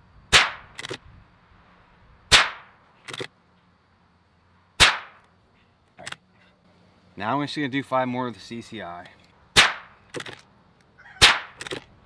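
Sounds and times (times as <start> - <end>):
rifle shots with echo: 0.3 - 0.7, 2.3 - 2.7, 4.8 - 5.2, 9.6 - 9.9
rifle bolt clicks: 11.6 - 11.9.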